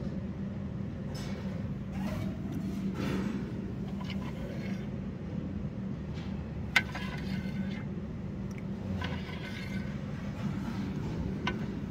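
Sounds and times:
steady low hum: 0:00.0 - 0:11.9
faint clinks and scrapes: 0:03.8 - 0:05.0, 0:06.7 - 0:07.9, 0:08.8 - 0:11.9.

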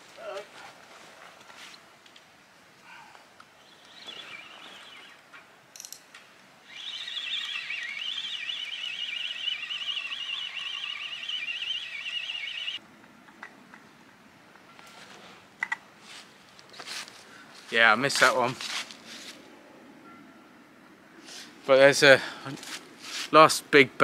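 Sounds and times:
fishing line whining off reel: 0:03.4 - 0:05.9, 0:06.6 - 0:12.8.

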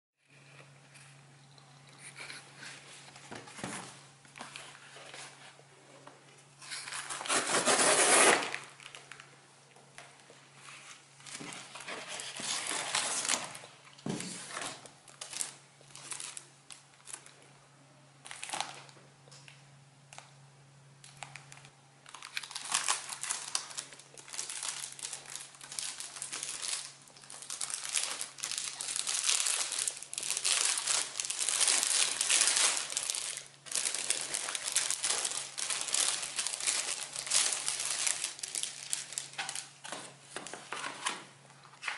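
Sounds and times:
faint low hum: 0:00.2 - 0:41.9
plastic wrap crinkling: 0:06.6 - 0:17.4, 0:18.2 - 0:19.5, 0:21.0 - 0:41.9
paper envelope rustling: 0:22.2 - 0:41.9.

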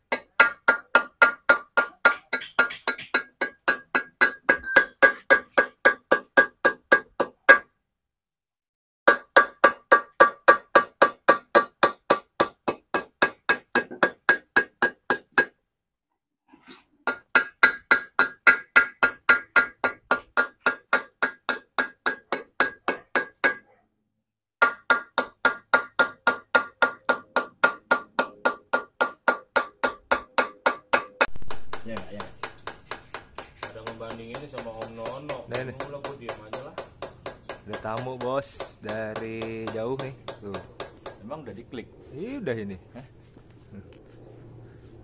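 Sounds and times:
small hammer tapping metal: 0:00.1 - 0:07.7, 0:24.6 - 0:41.2.

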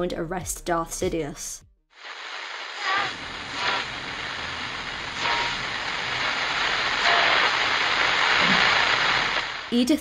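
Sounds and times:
television static hiss: 0:02.0 - 0:10.0.

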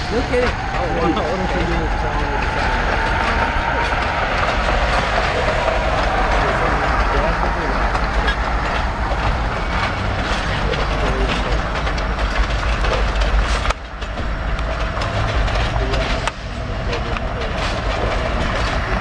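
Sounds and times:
train rumbling past: 0:00.0 - 0:19.0
wheel and rail noise: 0:00.0 - 0:19.0.

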